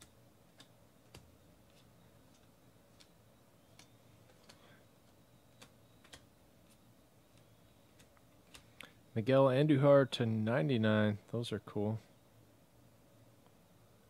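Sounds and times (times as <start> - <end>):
trading cards flipping clicks: 3.7 - 4.6, 5.6 - 6.8, 7.9 - 9.0.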